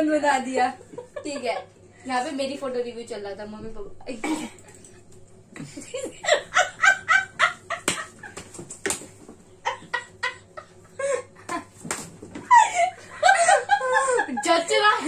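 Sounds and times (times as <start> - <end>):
girl and woman laughing: 5.6 - 8.4, 12.4 - 15.0.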